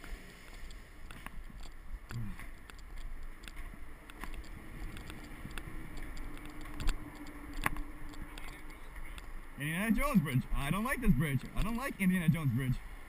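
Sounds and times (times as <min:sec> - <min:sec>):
light metallic clinks: 0:00.5 - 0:09.4.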